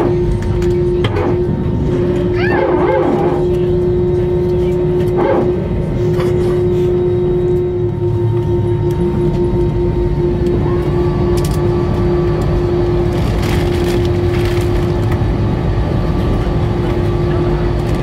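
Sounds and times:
jet engines idling: 0.0 - 18.0.

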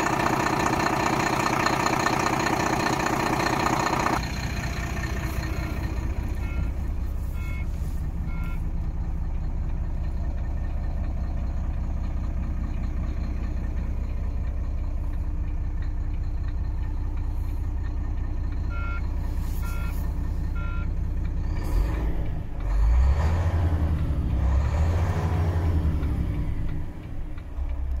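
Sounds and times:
diesel truck engine idling: 0.0 - 28.0
short beeps: 6.3 - 8.8, 18.7 - 21.0.

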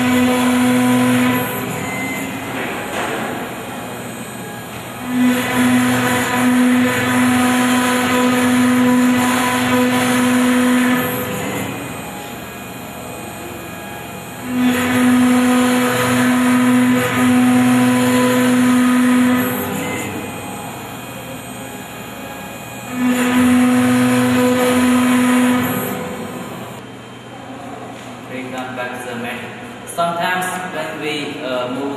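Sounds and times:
engraving bit cutting wood: 0.0 - 2.5, 4.9 - 26.8
router spindle running: 0.0 - 26.8.

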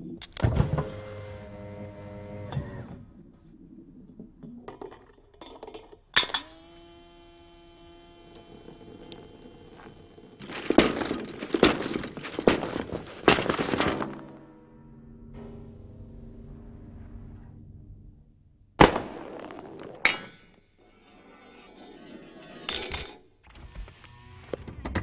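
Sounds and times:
sharp ringing strike: 14.1 - 18.3.

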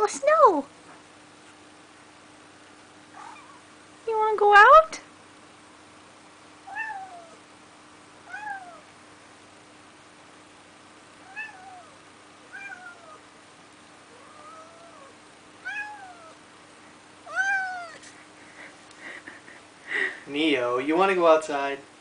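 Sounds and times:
cat meowing: 3.2 - 3.6, 6.7 - 7.4, 8.2 - 8.9, 11.2 - 13.2, 14.1 - 16.4, 17.2 - 18.0.

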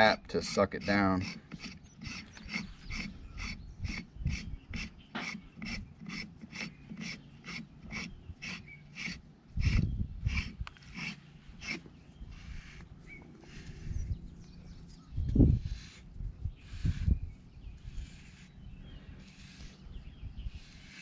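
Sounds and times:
metal threads rasping: 0.0 - 12.8.

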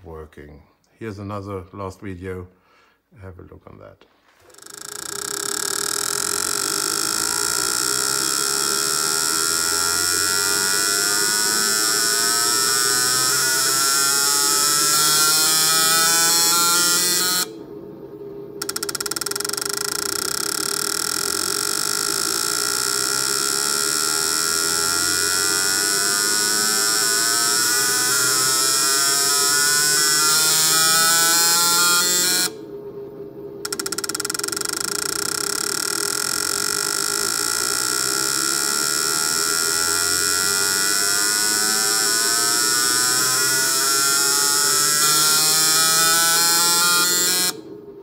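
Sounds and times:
steady high hiss: 0.0 - 48.0
fuel injectors buzzing: 33.6 - 47.6.

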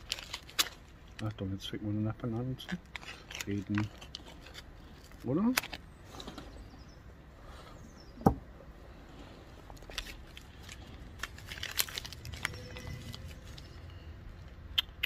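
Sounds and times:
padded envelope rustling: 0.0 - 1.3, 2.7 - 6.6, 9.7 - 13.9.

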